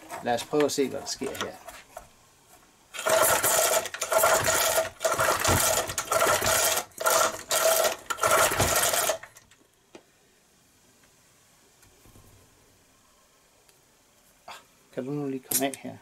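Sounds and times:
engine pull starter cranking: 0:02.9 - 0:09.6.

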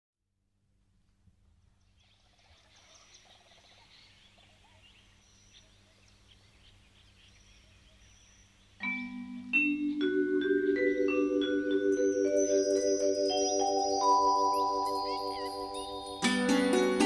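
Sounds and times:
birds chirping and calling: 0:01.8 - 0:16.8
mallet percussion music: 0:08.8 - 0:17.0.

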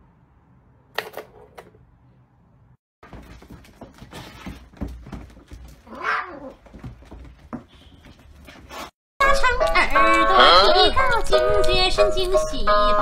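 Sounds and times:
cat scuffling on tiled floor: 0:03.1 - 0:08.9
cat yowling: 0:05.9 - 0:06.6.

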